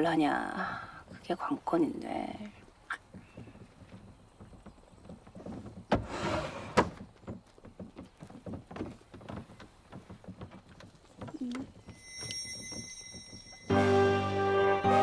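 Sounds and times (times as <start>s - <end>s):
wooden window scraping: 3.0s - 11.9s.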